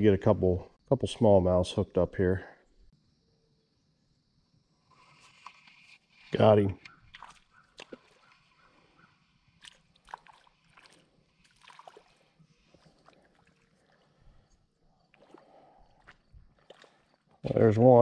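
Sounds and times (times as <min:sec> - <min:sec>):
faint water splashes: 0:06.3 - 0:18.0.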